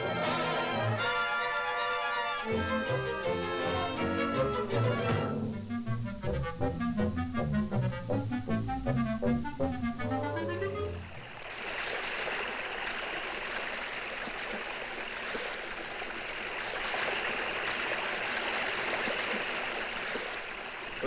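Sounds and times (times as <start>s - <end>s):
cartoon music: 0.0s - 11.1s
waterfall rushing: 11.2s - 21.0s.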